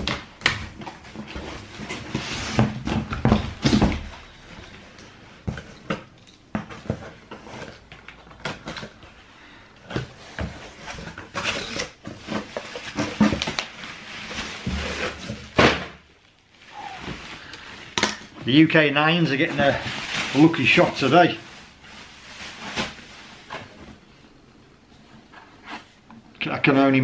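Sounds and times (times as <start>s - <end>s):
bubble wrap crinkling: 10.7s - 18.8s, 19.4s - 24.1s.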